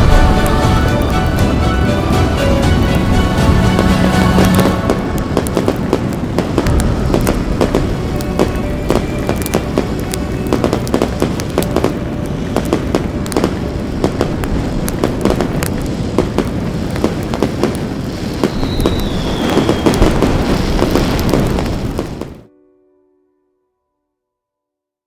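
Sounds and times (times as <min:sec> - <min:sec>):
steady rumble: 0:00.0 - 0:19.2
firecrackers cracking and popping: 0:00.0 - 0:22.5
firework whistle falling in pitch: 0:18.4 - 0:20.9.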